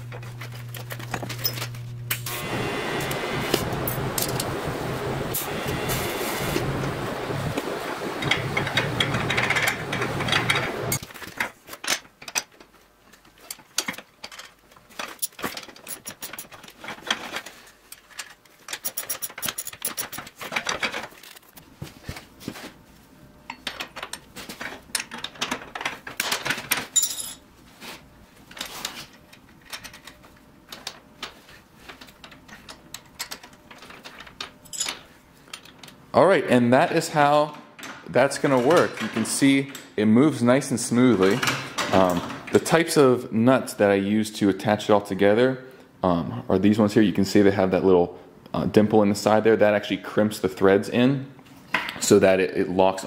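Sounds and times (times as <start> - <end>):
steady noisy hiss: 1.1 - 53.0
metal tools clinking and knocking: 13.2 - 21.4, 23.5 - 27.4, 31.9 - 36.0.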